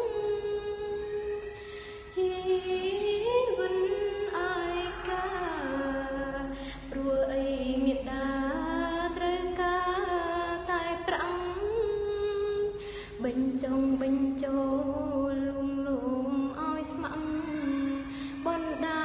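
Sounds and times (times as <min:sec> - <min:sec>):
slow song with wavering melody: 0:00.0 - 0:19.0.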